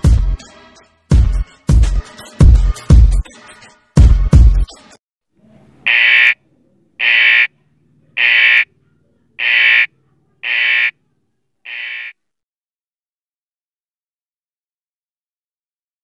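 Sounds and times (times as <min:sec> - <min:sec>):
electronic alarm beeping: 0:05.9 - 0:06.4, 0:07.0 - 0:07.5, 0:08.2 - 0:08.6, 0:09.4 - 0:10.9, 0:11.7 - 0:12.1.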